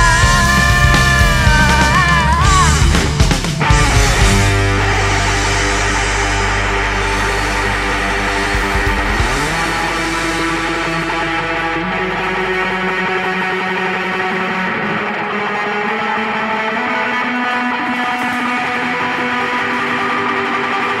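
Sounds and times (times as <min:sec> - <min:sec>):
low bass: 0:00.0 - 0:14.5
distorted guitar chords: 0:00.0 - 0:21.0.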